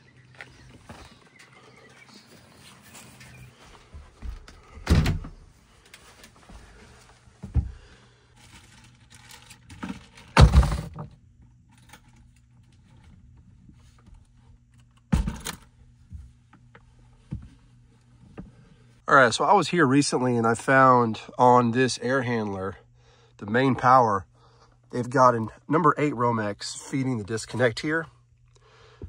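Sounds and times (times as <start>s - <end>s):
low steady hum: 0.0s - 29.0s
heavy handling thuds: 7.4s - 8.0s.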